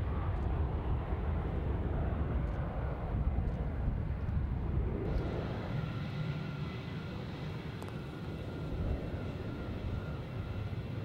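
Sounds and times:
jet engines roaring at takeoff: 0:00.0 - 0:11.0
thin jet noise with faint whine: 0:04.0 - 0:11.0.

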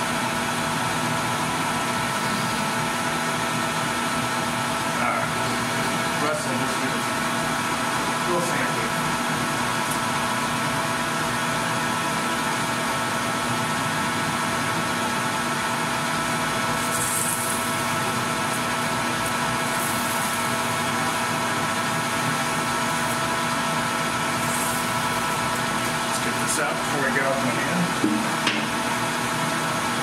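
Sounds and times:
metal lathe motor humming: 0:00.1 - 0:30.0.

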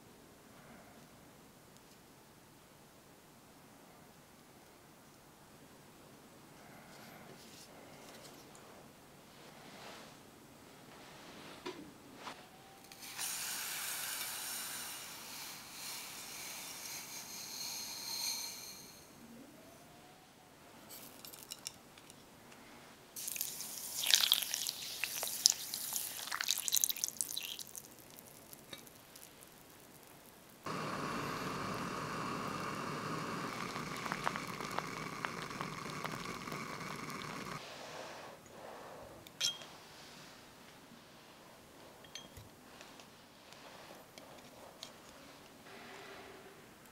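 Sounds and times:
steady hiss: 0:08.7 - 0:19.4, 0:22.5 - 0:39.2
water splashing into a pot: 0:23.2 - 0:29.3.

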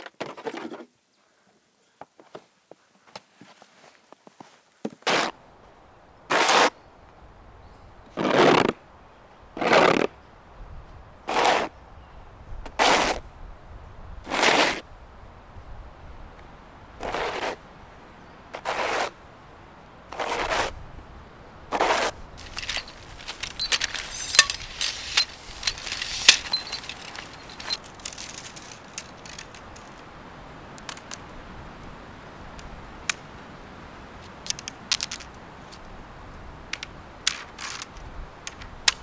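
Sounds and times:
footsteps crunching in snow: 0:18.6 - 0:19.2, 0:20.1 - 0:20.8, 0:21.7 - 0:30.1
crackling and clicking: 0:21.7 - 0:33.4, 0:34.1 - 0:39.0.

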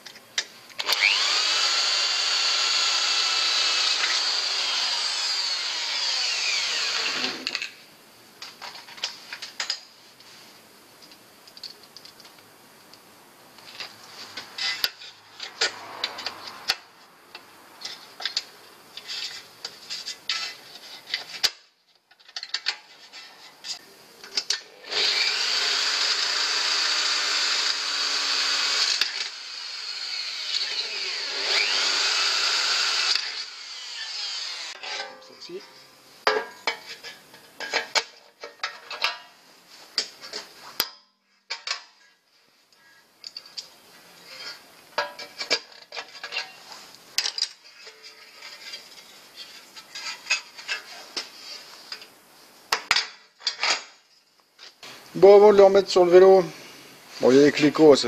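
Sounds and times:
electric drill boring into metal: 0:00.8 - 0:07.7, 0:24.6 - 0:34.8.

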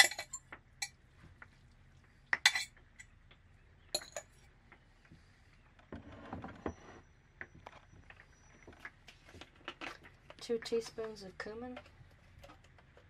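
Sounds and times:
fork scraping glass bowl: 0:02.4 - 0:02.7, 0:04.0 - 0:04.2.

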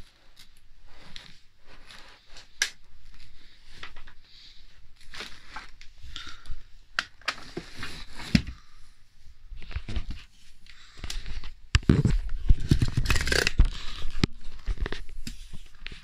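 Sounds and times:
plastic clicks knocks and scrapes: 0:11.8 - 0:16.0.

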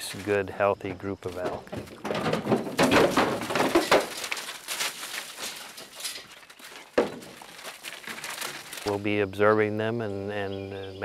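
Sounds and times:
hooves clattering on trailer floor: 0:00.0 - 0:09.0
knocks against trailer: 0:00.8 - 0:04.4.

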